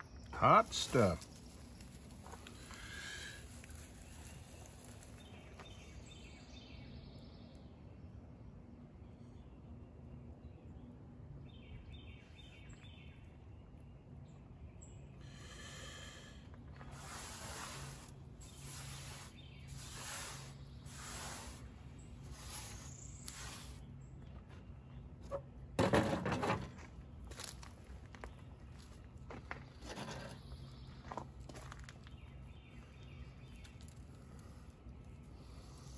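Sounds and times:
dry pine needles rustling: 0.6s - 6.3s, 16.7s - 23.9s, 30.9s - 35.9s.

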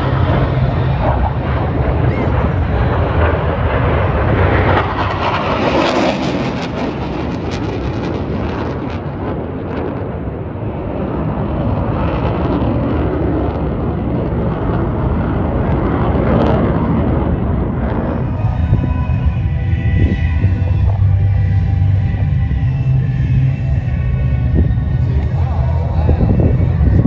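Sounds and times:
airplane engine flying over: 0.0s - 27.0s.

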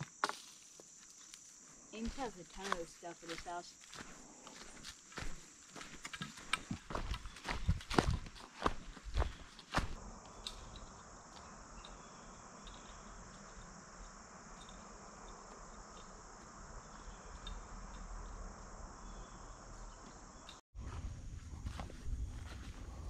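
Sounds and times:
footsteps on leaf litter: 0.0s - 10.0s
crickets chorus: 0.0s - 23.0s.

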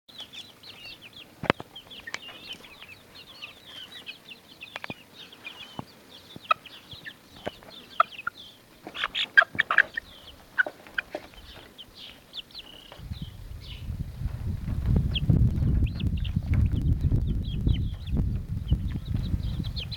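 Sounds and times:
beaks pecking bread: 0.1s - 13.0s
chicks chirping and clucking: 0.1s - 19.9s
low rumble: 13.0s - 19.9s.

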